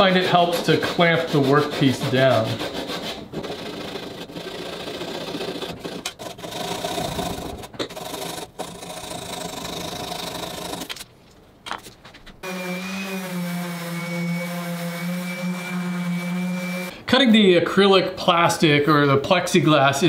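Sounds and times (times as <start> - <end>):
hand saw rasping through wood: 0.0 - 10.9, 12.4 - 16.9
orbital sander humming: 12.4 - 16.9.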